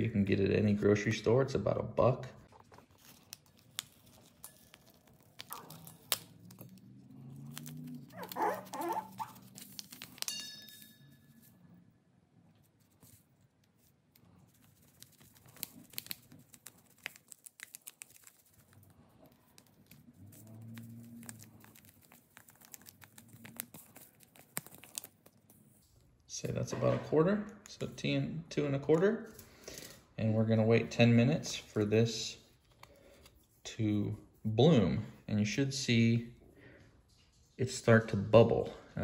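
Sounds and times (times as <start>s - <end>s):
paper packet crinkling: 2.5s - 10.3s, 12.8s - 25.9s.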